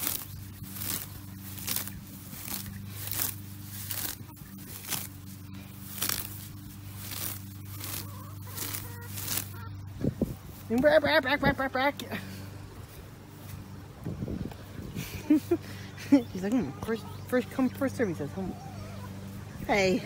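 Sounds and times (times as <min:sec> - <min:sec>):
grass stems ripping: 0:00.0 - 0:10.8.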